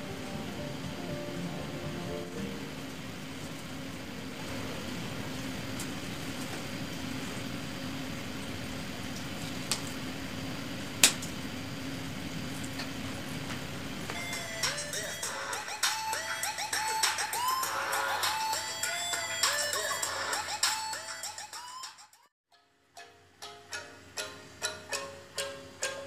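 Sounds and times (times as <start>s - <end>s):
low room hum: 0.0s - 15.8s.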